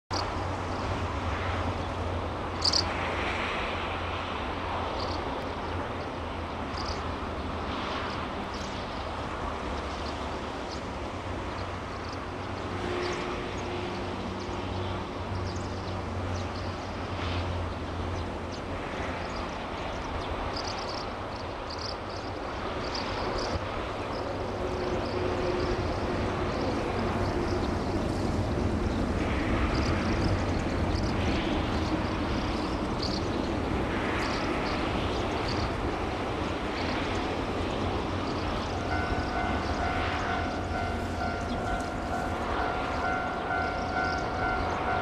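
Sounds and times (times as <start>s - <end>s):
rushing background noise: 0.1s - 45.0s
faint steady tone: 38.2s - 45.0s.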